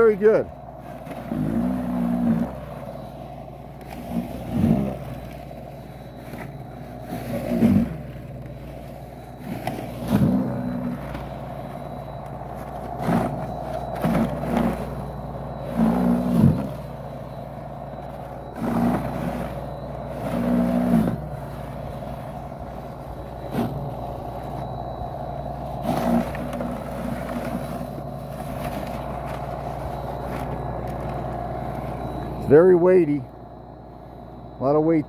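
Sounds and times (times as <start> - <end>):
battery snow broom running: 0.0 - 35.0.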